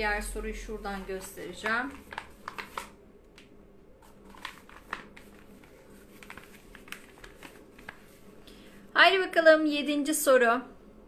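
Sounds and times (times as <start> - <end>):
paper rustling and clicking: 1.2 - 3.0, 4.0 - 8.2.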